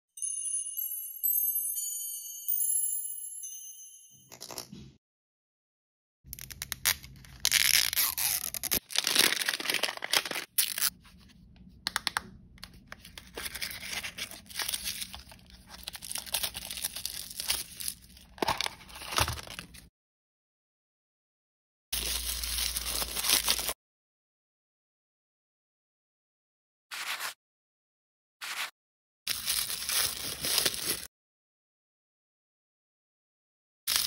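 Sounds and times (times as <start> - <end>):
plastic wrapping tearing and crinkling: 6.4 - 11.0, 13.0 - 19.8, 22.0 - 23.8, 29.3 - 31.1.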